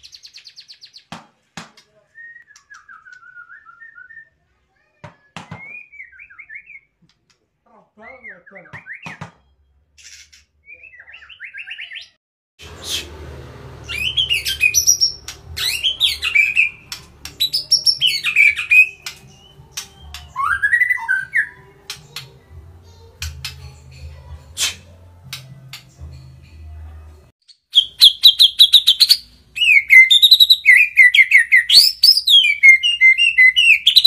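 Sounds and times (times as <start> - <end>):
bird singing whistled phrases: 2.2 - 4.4, 5.2 - 6.9, 10.6 - 12.2, 13.9 - 21.6, 27.5 - 34.0
sharp clicks: 16.8 - 17.6.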